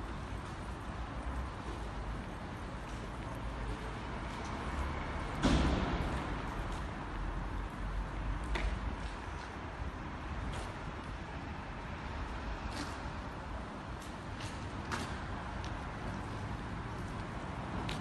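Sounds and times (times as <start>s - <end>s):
loud thump: 5.4s - 6.1s.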